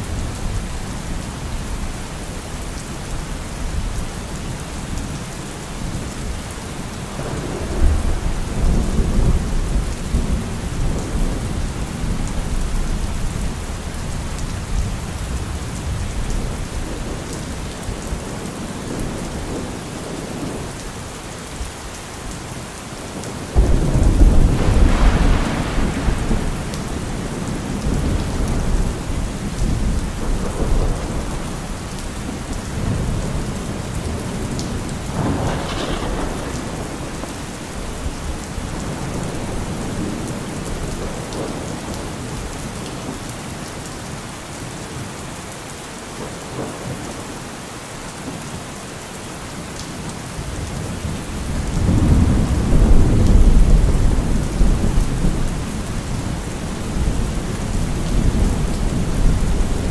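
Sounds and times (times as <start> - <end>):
heavy rain falling: 0.0 - 59.9
low thunder rumbling: 7.2 - 20.7, 23.5 - 42.3, 50.5 - 59.9
loud thunderclap: 23.6 - 31.5, 34.9 - 40.3, 51.5 - 55.4.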